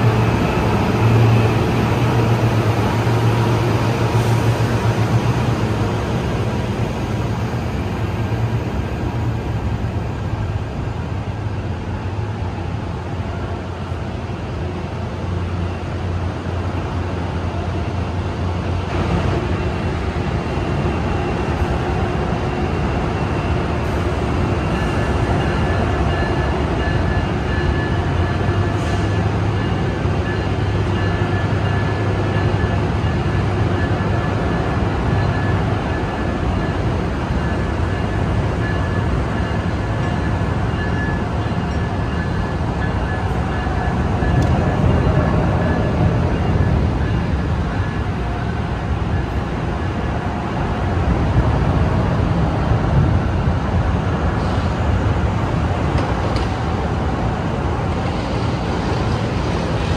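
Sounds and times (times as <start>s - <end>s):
diesel train engine rumble: 0.0s - 59.9s
rail noise: 0.0s - 59.9s.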